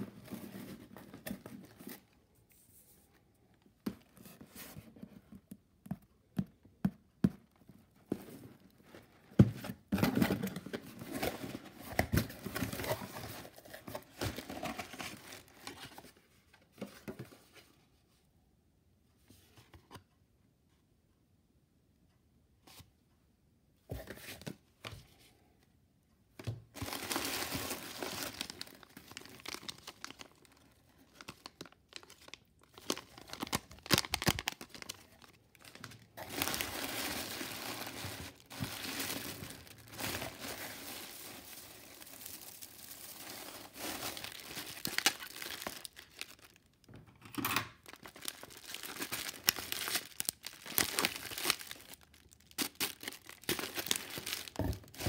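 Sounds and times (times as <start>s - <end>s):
paper and bubble wrap rustling: 0.0s - 3.0s, 9.7s - 16.2s, 26.8s - 46.7s, 47.8s - 55.0s.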